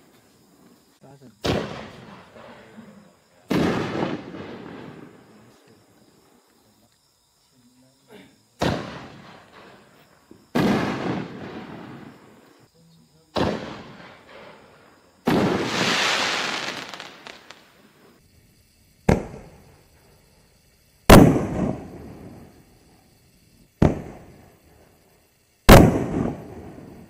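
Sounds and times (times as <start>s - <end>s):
firework burst with long tail: 3.5s - 5.3s, 10.5s - 12.5s, 13.3s - 18.2s, 21.0s - 22.7s, 25.6s - 27.0s.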